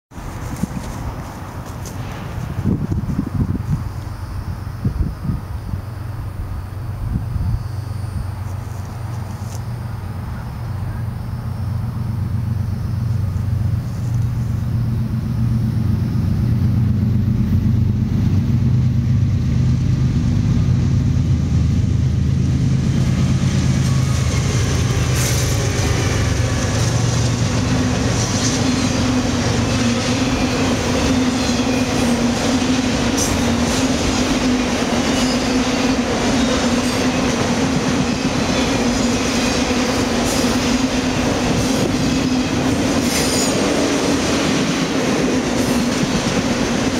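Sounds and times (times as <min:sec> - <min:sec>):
diesel locomotive drone: 0:00.1 - 0:46.9
steady low whine: 0:01.0 - 0:28.2
steel wheels clattering on rails: 0:23.2 - 0:46.9.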